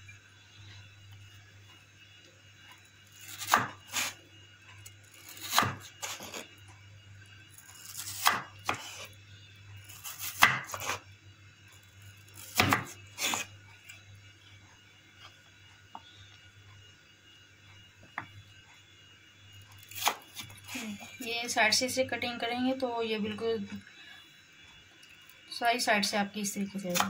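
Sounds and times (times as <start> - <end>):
knife chopping on wooden board: 3.3 - 4.1, 5.3 - 6.4, 7.9 - 9.0, 10.1 - 11.0, 12.4 - 13.5.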